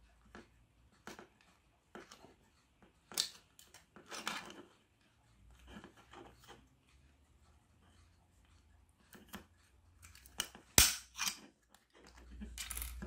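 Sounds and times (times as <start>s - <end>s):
plastic clicks and scrapes: 0.4s - 4.8s.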